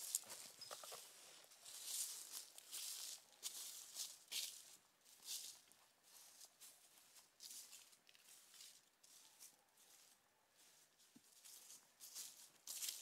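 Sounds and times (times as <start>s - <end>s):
footsteps in dry leaves: 0.0s - 13.0s.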